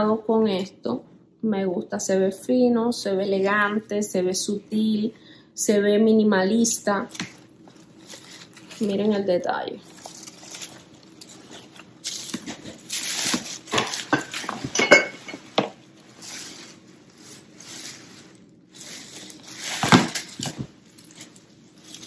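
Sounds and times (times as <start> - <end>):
artificial leaves rustling: 6.5 - 22.0.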